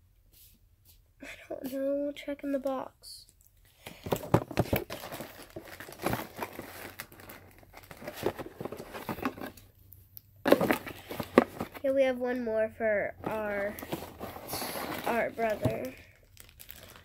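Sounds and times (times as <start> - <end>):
packaging crinkling and rustling: 3.8 - 9.7, 10.5 - 11.9, 13.2 - 17.0.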